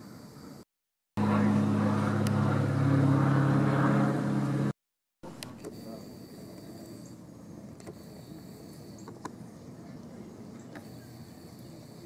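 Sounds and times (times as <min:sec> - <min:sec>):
distant road traffic: 0:01.2 - 0:12.0.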